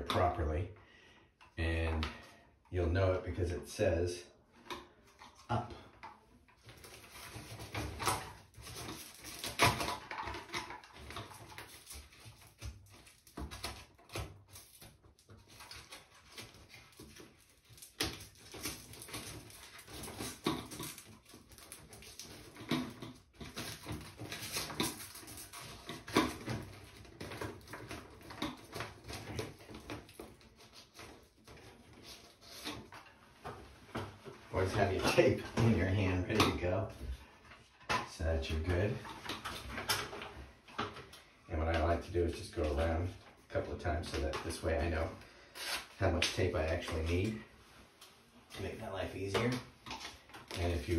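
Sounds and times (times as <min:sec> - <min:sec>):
plastic scraping: 0:04.6 - 0:47.6
foil duct crinkling: 0:06.6 - 0:33.2.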